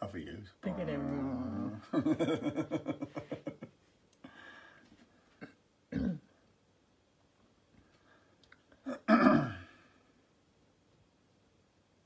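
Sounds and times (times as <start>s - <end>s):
person's voice: 0.0s - 1.8s
person clearing throat: 5.4s - 6.3s, 8.8s - 9.8s.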